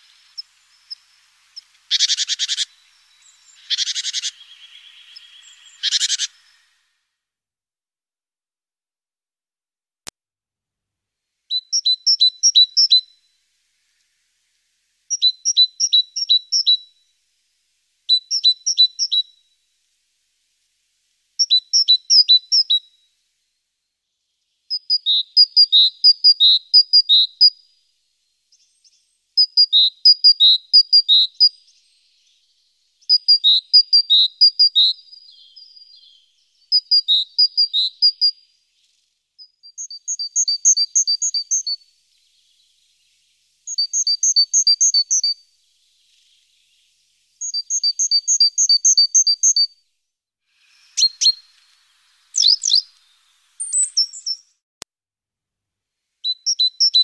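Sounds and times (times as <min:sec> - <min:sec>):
great tit singing: 0:00.0 - 0:06.7, 0:11.5 - 0:13.2, 0:15.1 - 0:16.8, 0:18.1 - 0:19.4, 0:21.4 - 0:22.8, 0:28.4 - 0:49.8, 0:52.4 - 0:54.6, 0:56.3 - 0:57.0.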